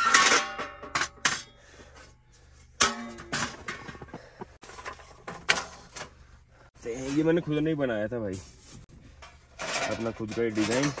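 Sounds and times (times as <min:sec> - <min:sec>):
sheet metal panels clanking: 0:09.2 - 0:11.0.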